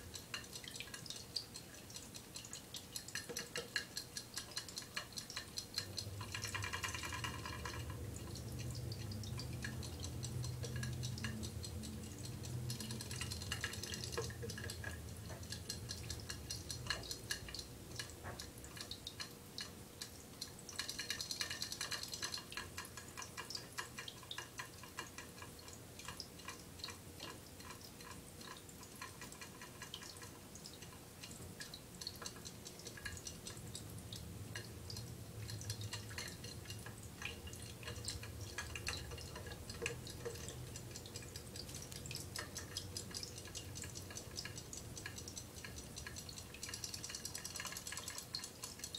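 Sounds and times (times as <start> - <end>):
water trickling and dripping: 0.0 - 48.9.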